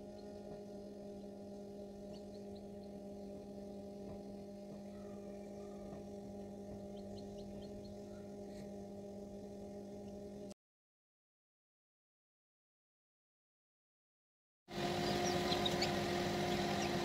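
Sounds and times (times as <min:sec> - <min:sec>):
incubator electrical hum: 0:00.0 - 0:10.6, 0:14.7 - 0:17.0
chick peeping: 0:02.0 - 0:03.0, 0:04.8 - 0:06.1, 0:06.7 - 0:08.6, 0:14.8 - 0:17.0.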